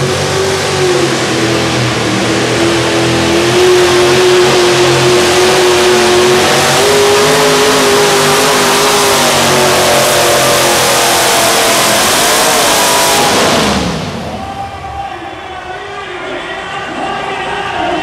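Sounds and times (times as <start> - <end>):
truck engine labouring under load: 0.0 - 18.0.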